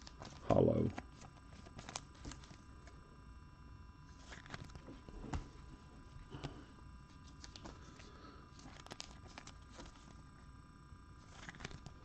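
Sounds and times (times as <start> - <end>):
cards tapping and rustling: 0.0 - 2.6, 4.1 - 5.7, 6.3 - 6.6, 7.2 - 10.2, 11.2 - 12.0.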